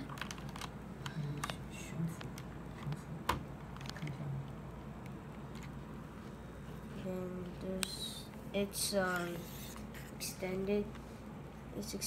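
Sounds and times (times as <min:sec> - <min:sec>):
keyboard plastic clicks and taps: 0:00.0 - 0:01.6.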